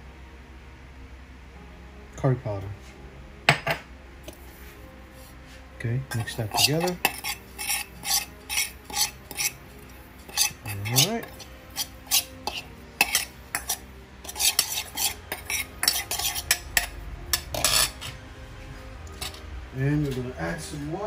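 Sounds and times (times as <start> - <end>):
metal spoon scraping metal bowl: 6.1 - 18.2, 19.0 - 20.2.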